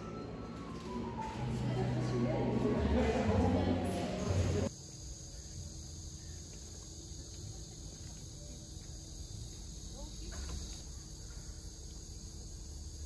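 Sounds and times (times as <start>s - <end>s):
insects trilling: 4.6s - 13.0s.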